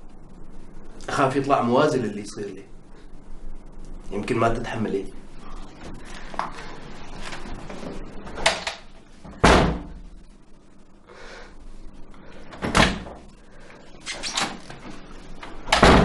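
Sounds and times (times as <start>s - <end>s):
door banging shut: 8.4s - 10.0s, 12.6s - 13.2s, 15.7s - 16.0s.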